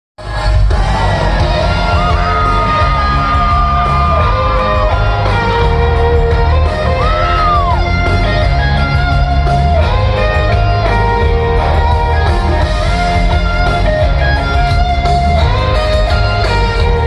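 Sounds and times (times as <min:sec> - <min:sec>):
country band playing over pa: 0:00.2 - 0:17.0
electric guitar lead: 0:00.3 - 0:17.0.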